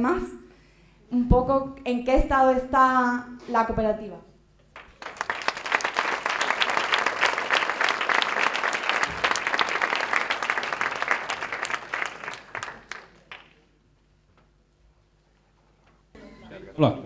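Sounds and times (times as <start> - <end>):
audience applauding: 4.8 - 13.7.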